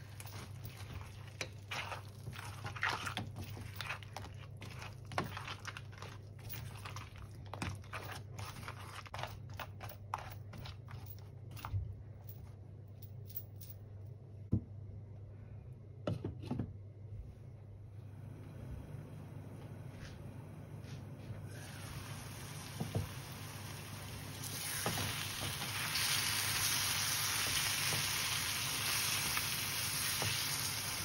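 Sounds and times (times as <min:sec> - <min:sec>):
low steady hum: 0:00.0 - 0:24.8.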